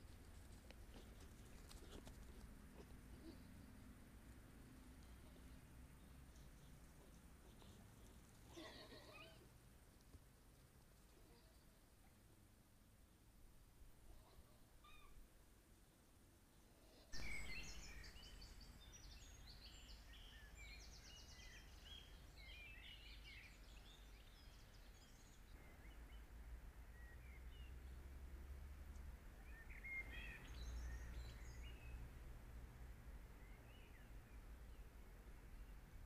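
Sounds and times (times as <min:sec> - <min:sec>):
songbirds chirping and trilling: 0:17.2 - 0:32.4, 0:33.1 - 0:36.0.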